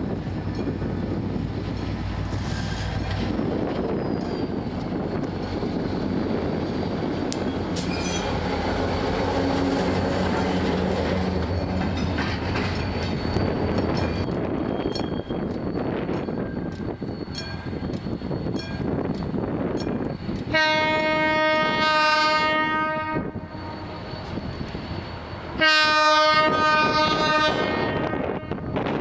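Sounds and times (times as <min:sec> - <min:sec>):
diesel locomotive engine running: 0:00.0 - 0:29.0
high wheel squeal on rails: 0:00.1 - 0:29.0
wheels clicking over rail joints: 0:10.2 - 0:21.1.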